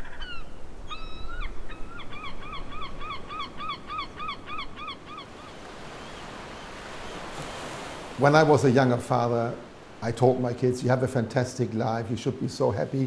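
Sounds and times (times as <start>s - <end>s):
seabird calling: 0.0s - 10.4s
surf washing: 2.4s - 13.0s.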